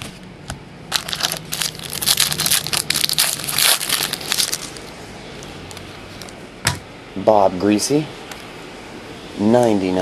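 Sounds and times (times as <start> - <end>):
cards rustling by hand: 0.9 - 4.9.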